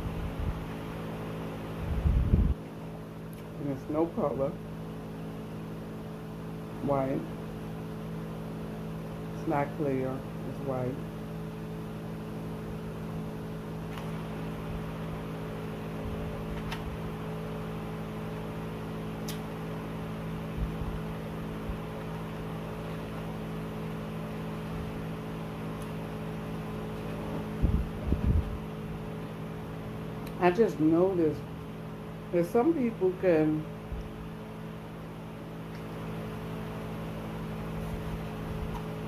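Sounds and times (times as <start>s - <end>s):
machine hum: 0.0s - 39.0s.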